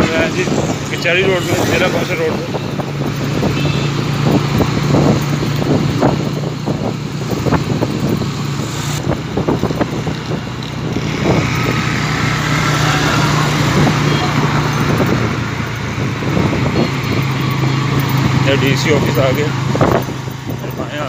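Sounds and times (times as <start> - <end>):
motorcycle engine running: 0.0 - 21.0
wind buffeting microphone: 0.0 - 21.0.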